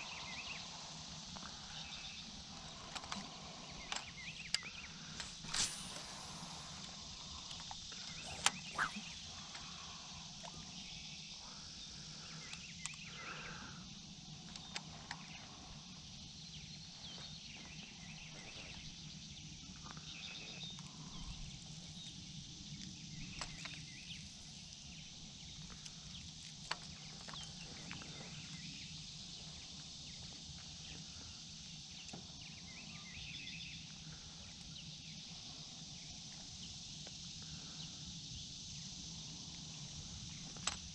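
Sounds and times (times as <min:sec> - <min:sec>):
high hiss: 0:00.0 - 0:14.5
sharp clicks: 0:02.9 - 0:09.7
small bird chirps: 0:03.4 - 0:10.1.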